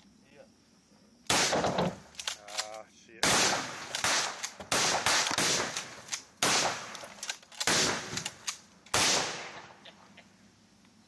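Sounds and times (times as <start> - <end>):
gunshots: 1.3 - 9.8.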